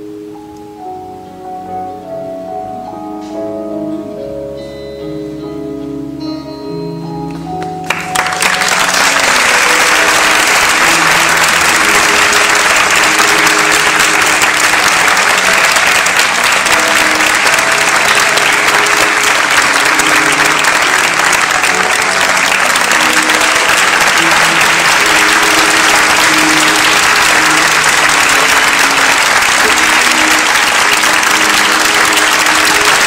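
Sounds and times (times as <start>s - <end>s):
music: 0.0s - 33.0s
audience applauding: 7.6s - 33.0s.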